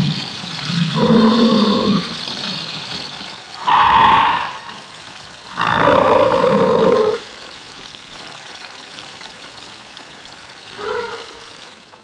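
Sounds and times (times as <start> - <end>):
alligator roaring: 0.6 - 2.2, 3.6 - 7.3.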